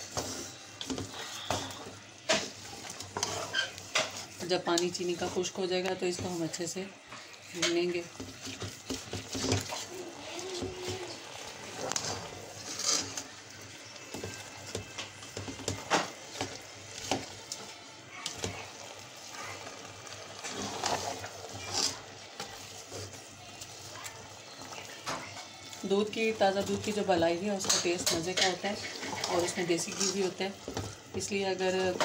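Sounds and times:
spatula scraping steel pot: 0:00.0 - 0:06.8, 0:07.5 - 0:13.3, 0:18.2 - 0:23.2, 0:24.0 - 0:32.0
mixture sizzling: 0:00.0 - 0:32.0.

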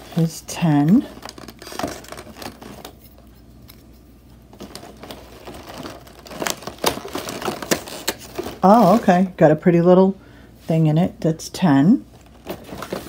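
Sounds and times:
foil box being torn open: 0:01.2 - 0:03.0, 0:04.6 - 0:09.2.

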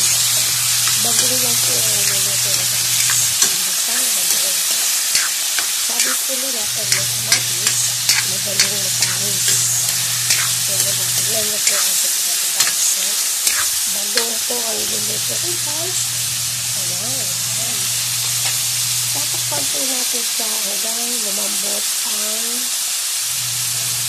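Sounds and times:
spatula scraping metal wok: 0:00.0 - 0:14.4
vegetables sizzling in hot oil: 0:00.0 - 0:24.0.

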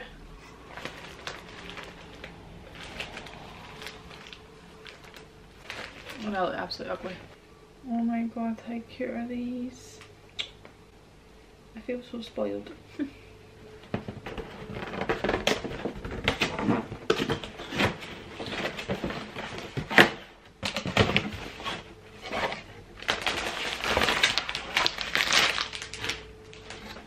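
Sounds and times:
wrapping rustling and crinkling: 0:00.5 - 0:07.4, 0:14.0 - 0:27.0.

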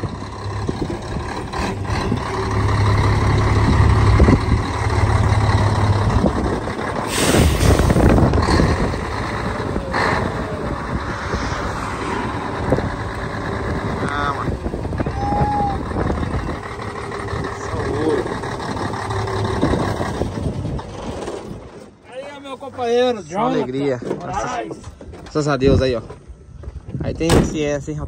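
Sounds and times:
diesel truck engine rumble: 0:00.0 - 0:22.0
air brake hiss: 0:07.1 - 0:08.2.

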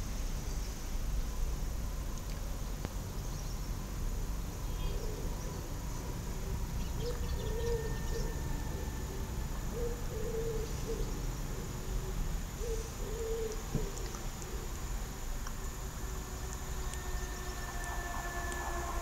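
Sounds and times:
low steady rumble: 0:00.0 - 0:19.0
dove cooing: 0:07.0 - 0:14.8.

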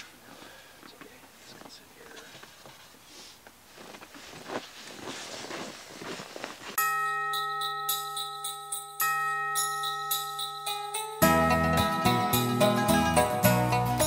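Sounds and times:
scuffing and rustling in snow: 0:02.2 - 0:06.8
bell-like tones: 0:06.8 - 0:14.0
bright jingle music: 0:06.8 - 0:14.0.

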